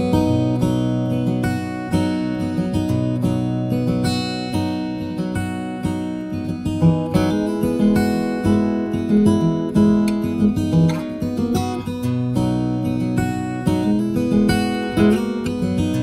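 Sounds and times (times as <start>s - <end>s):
acoustic guitar music: 0.0s - 16.0s.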